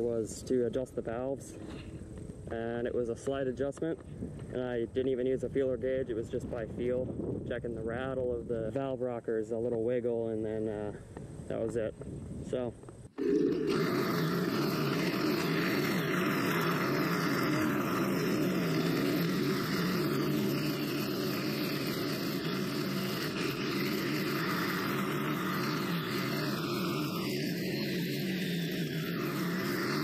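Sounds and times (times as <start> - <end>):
string trimmer cutting grass: 13.1 - 30.0.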